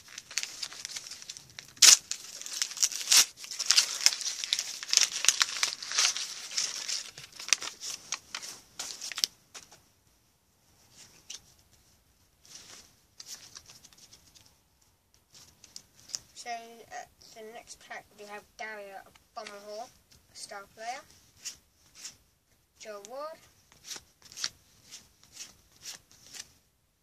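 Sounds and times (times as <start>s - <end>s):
wrapper crinkling: 0.0s - 9.3s
wrapper ripping: 0.0s - 9.3s
faint rustles: 3.6s - 16.4s.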